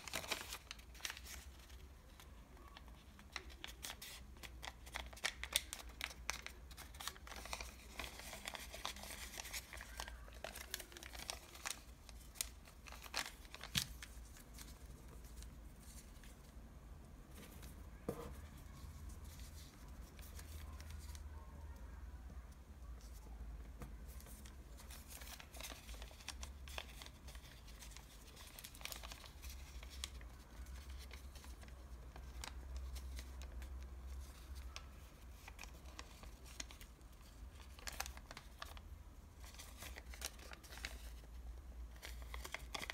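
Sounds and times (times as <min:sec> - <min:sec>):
paper crinkling: 0:00.0 - 0:16.6, 0:17.3 - 0:21.4, 0:24.0 - 0:42.9.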